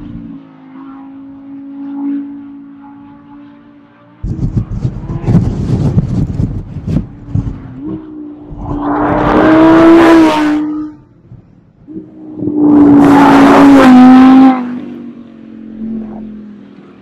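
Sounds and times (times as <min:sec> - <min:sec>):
car engine passing at high revs: 0:00.0 - 0:17.0.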